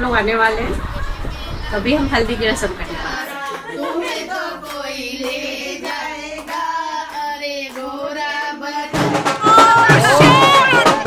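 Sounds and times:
music with drums: 8.8 - 11.0.

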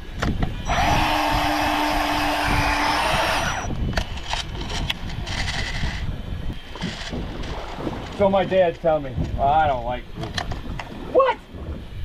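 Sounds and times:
fishing reel whirring: 0.5 - 7.8.

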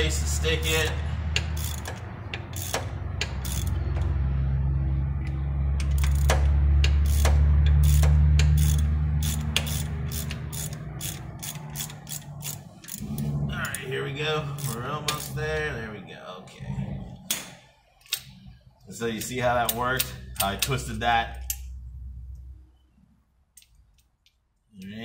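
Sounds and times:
hand ratchet clicking: 0.6 - 4.2, 5.3 - 13.0, 14.6 - 15.4, 19.2 - 21.7.

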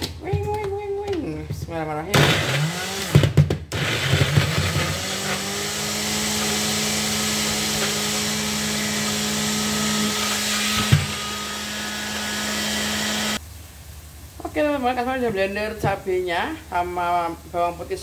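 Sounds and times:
electric blender grinding: 2.2 - 13.4.

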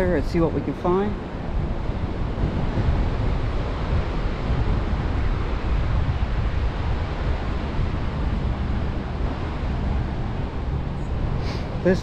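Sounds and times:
ocean surf: 0.0 - 12.0
wind noise on microphone: 0.0 - 12.0.

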